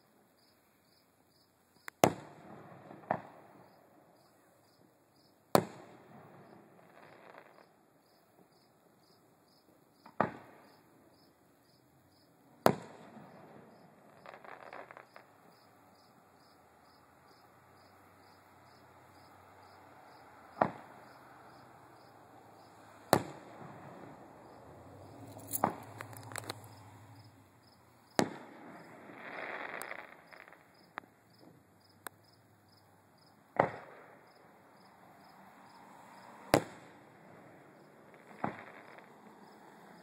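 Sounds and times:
crickets chirping: 0.0s - 2.0s, 3.4s - 5.5s, 6.3s - 40.0s
distant firework bangs: 1.9s - 4.0s, 5.5s - 7.8s, 10.0s - 11.0s, 12.6s - 16.5s, 17.3s - 31.6s, 33.5s - 34.9s, 35.5s - 40.0s
firework crackle: 5.5s - 7.8s, 12.6s - 15.8s, 17.4s - 32.1s, 33.5s - 40.0s.

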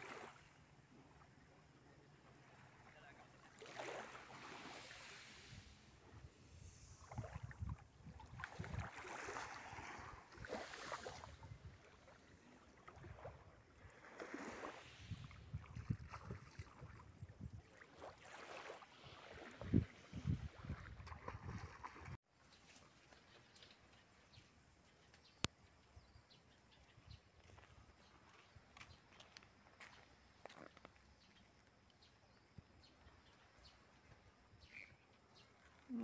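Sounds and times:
small waves washing on shore: 0.0s - 1.3s, 2.0s - 22.2s
wind gusting on microphone: 5.6s - 9.0s, 14.8s - 17.7s, 19.5s - 22.2s.

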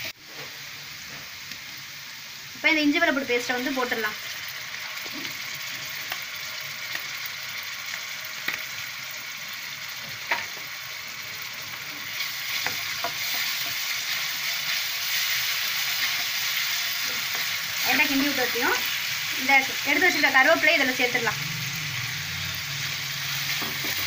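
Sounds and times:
onions sizzling in hot oil: 0.0s - 24.0s.

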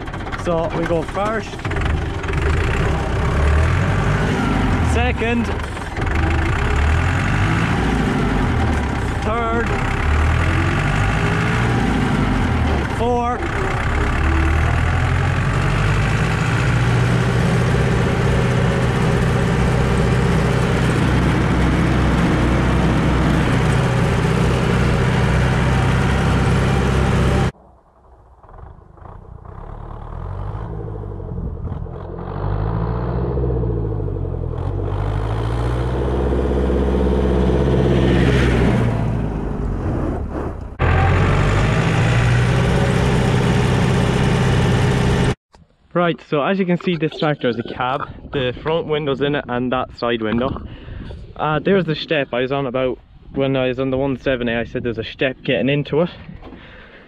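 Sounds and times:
tractor engine pulling steadily: 0.0s - 27.6s, 28.4s - 45.7s
tractor approaching along lane: 0.0s - 45.4s.

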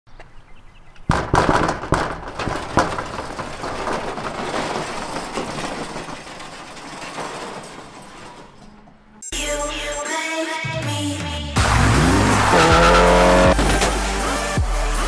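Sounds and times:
metal door clatter: 1.0s - 9.3s, 12.0s - 14.6s
metal slats rattling: 1.1s - 9.2s, 11.7s - 14.6s.

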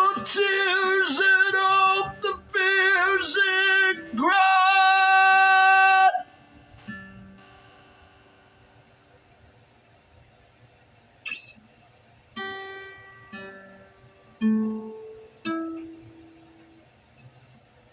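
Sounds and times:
man singing: 0.0s - 6.3s
strummed acoustic guitar: 0.0s - 8.6s, 12.3s - 17.7s.

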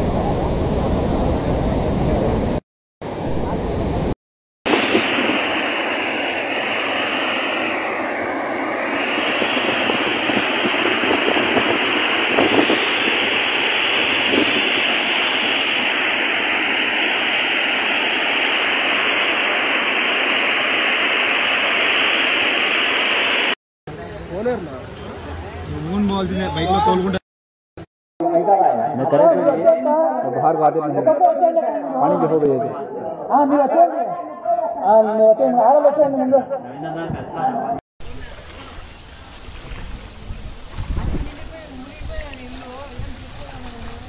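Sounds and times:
floodwater rushing in river: 38.0s - 44.0s.

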